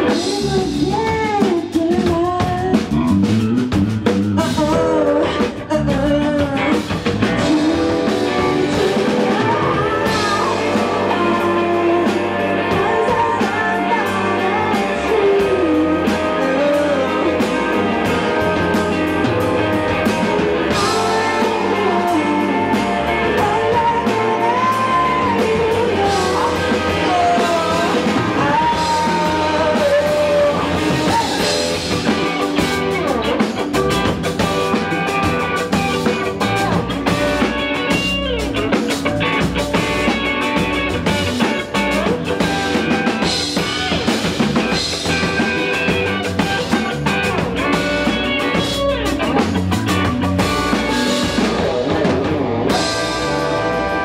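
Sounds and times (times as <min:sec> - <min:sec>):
woman singing: 0:00.0 - 0:03.1, 0:04.4 - 0:33.5
drum kit: 0:00.0 - 0:54.0
electric guitar: 0:00.0 - 0:54.0.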